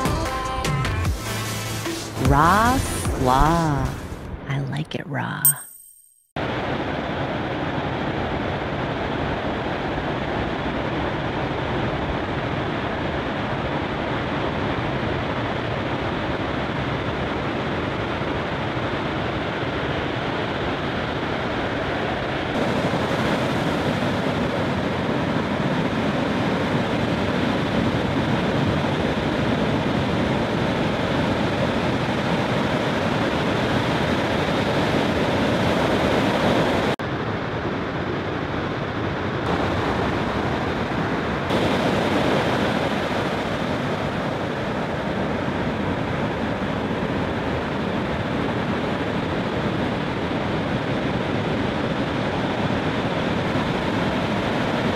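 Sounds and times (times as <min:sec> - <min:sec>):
ocean waves breaking: 0:18.3 - 0:37.0, 0:39.0 - 0:54.9.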